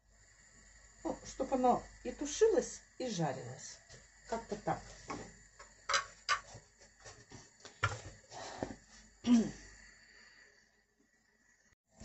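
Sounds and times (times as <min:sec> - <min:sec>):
vegetables frying hiss: 0:00.4 - 0:06.5
kitchen utensils knocking: 0:05.9 - 0:06.5.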